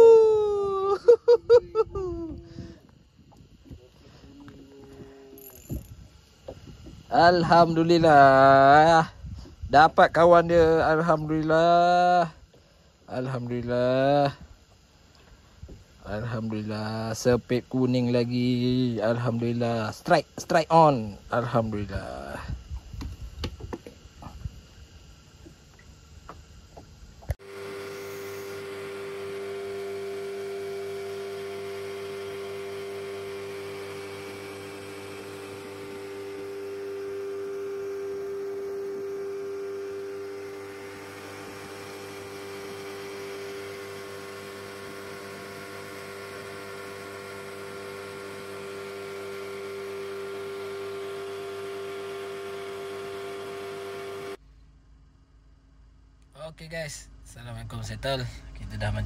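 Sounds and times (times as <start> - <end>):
outboard motor humming: 0.0 - 11.4, 25.2 - 54.7.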